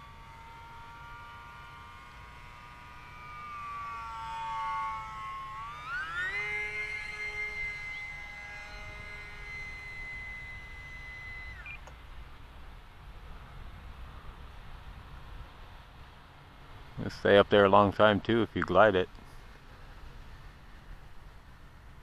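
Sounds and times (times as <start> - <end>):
model plane motor whine: 0.0 - 13.4.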